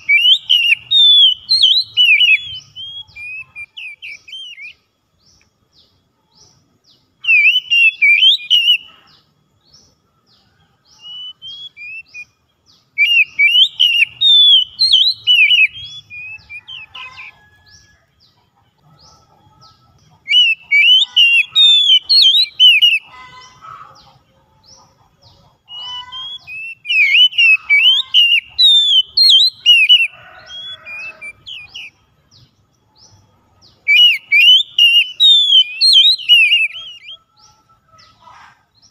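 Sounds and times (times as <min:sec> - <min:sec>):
bird singing whistles and chirps: 0:00.0 - 0:05.5, 0:06.3 - 0:18.0, 0:19.0 - 0:23.6, 0:25.6 - 0:38.2.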